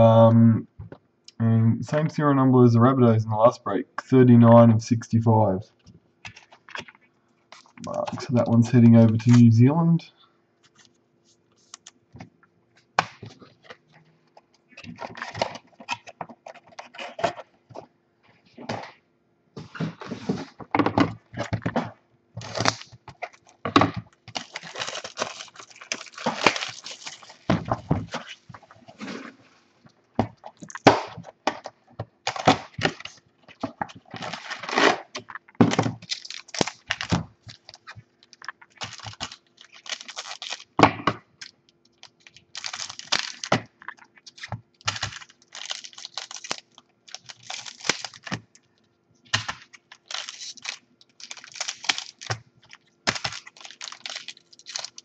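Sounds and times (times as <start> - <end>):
wrappers rustling and crinkling: 22.4 - 29.8, 36.0 - 40.8, 41.9 - 48.7, 49.6 - 55.0.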